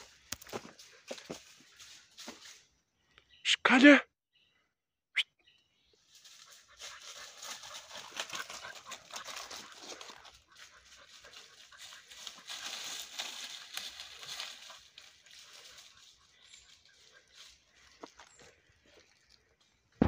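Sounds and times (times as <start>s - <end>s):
dry leaves rustling underfoot: 0.0s - 2.7s, 6.0s - 19.7s
dog panting: 6.2s - 18.0s.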